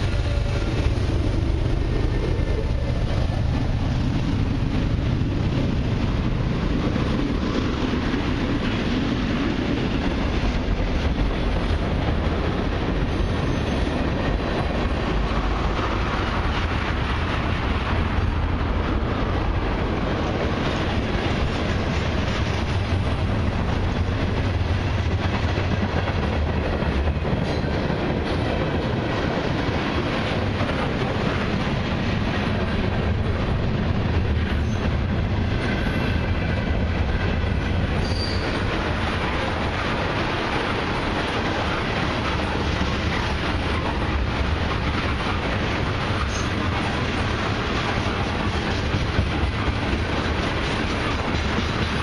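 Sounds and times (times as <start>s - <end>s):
train wheels rumbling on rails: 0.0s - 52.0s
faint wheel squeal: 38.0s - 38.6s.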